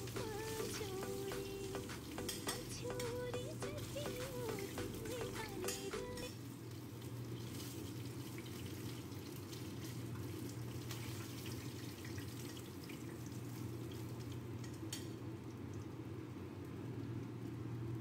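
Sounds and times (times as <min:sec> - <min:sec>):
steady low hum: 0:00.0 - 0:06.5
food sizzling in hot oil: 0:00.0 - 0:12.2
metal tongs clicking: 0:02.2 - 0:03.3.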